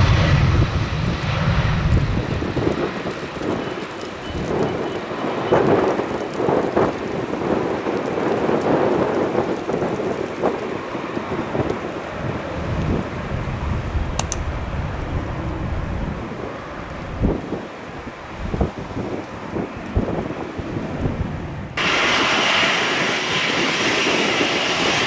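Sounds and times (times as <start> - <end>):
jet engine rumble: 0.0 - 25.0
short click: 14.2 - 14.4.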